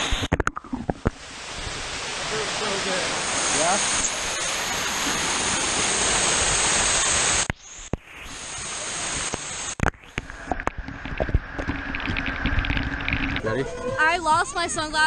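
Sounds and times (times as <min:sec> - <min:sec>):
water pouring and splashing: 0:00.0 - 0:13.8
muffled splashes: 0:00.0 - 0:14.2
water knocking on camera: 0:09.8 - 0:13.5.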